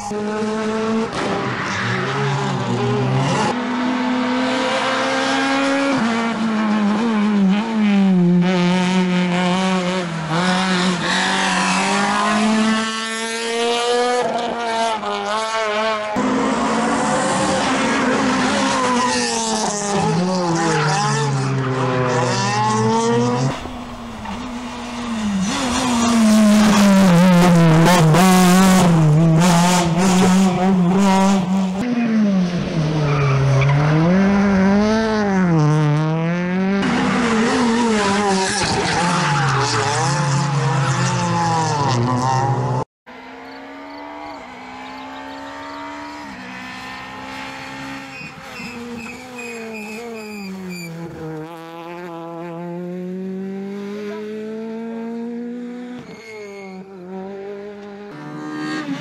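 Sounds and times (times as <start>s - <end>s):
rally car engines revving: 0.0s - 59.0s
tyre squeal: 47.8s - 51.2s, 56.0s - 57.0s.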